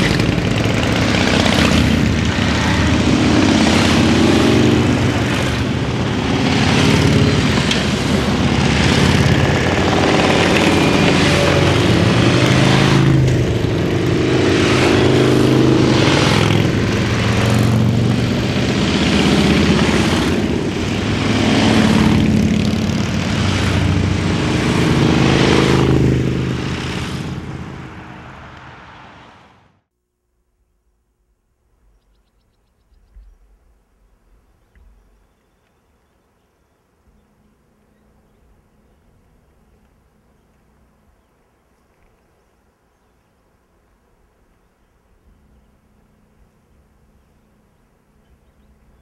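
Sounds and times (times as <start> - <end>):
motorcycles riding past: 0.0 - 29.8.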